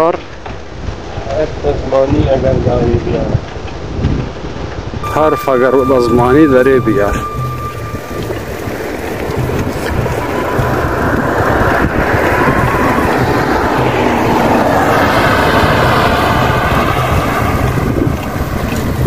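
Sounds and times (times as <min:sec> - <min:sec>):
wind rushing over microphone: 0:00.4 - 0:19.0
passing motor vehicle: 0:05.4 - 0:19.0.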